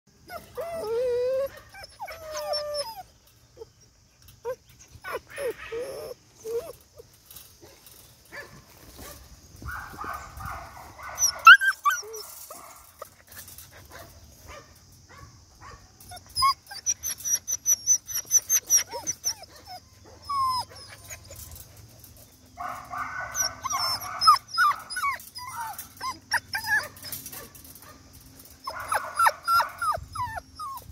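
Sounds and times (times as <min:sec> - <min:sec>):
puppies whimpering and yipping: 0:00.2 - 0:07.2, 0:11.0 - 0:14.0, 0:16.0 - 0:27.5, 0:28.4 - 0:30.9
clicks and rattles against mesh: 0:06.2 - 0:15.2, 0:16.0 - 0:30.9.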